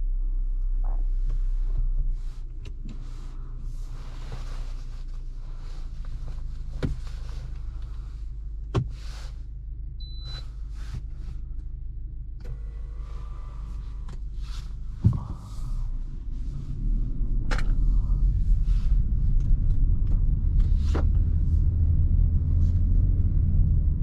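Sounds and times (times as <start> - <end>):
car engine and road rumble: 0.0 - 24.0
short high beep: 10.0 - 10.4.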